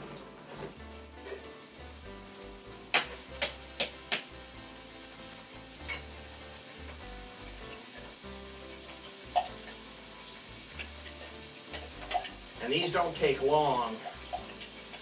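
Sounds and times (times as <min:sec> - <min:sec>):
onions sizzling in oil: 0:00.0 - 0:15.0.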